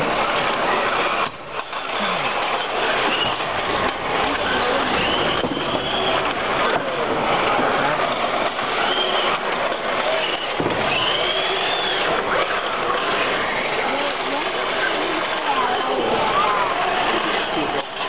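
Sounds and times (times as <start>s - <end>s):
crowd chatter: 0.0s - 18.0s
small robot motors whirring: 7.9s - 18.0s
short high whines: 8.6s - 14.0s.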